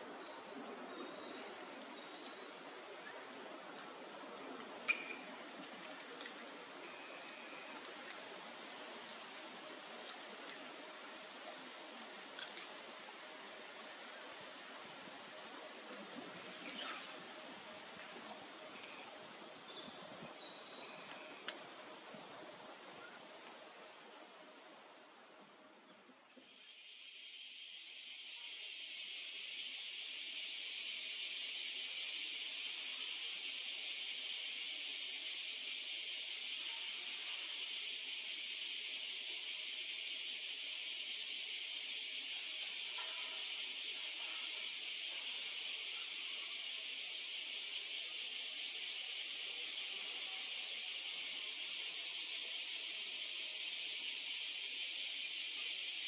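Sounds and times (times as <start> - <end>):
cicadas shrilling: 26.4 - 56.0.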